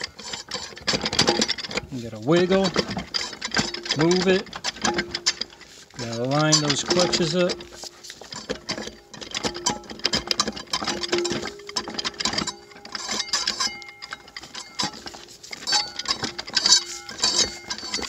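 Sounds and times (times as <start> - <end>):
metallic clicking and rattling: 0.0 - 18.0
short ringing tones: 11.0 - 18.0.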